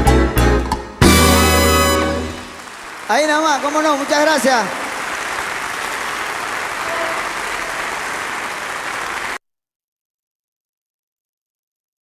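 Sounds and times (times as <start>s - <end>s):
audience applauding: 1.3s - 9.4s.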